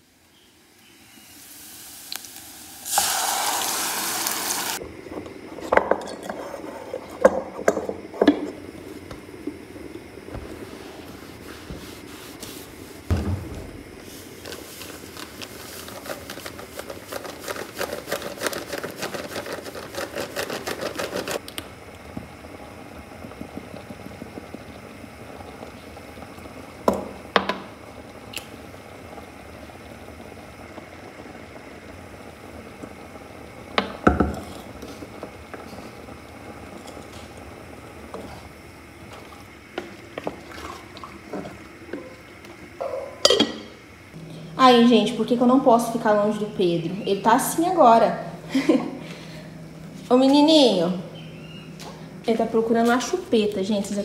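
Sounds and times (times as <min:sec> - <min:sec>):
cloth wiping countertop: 0:10.3 - 0:21.4
thump: 0:13.1 - 0:13.8.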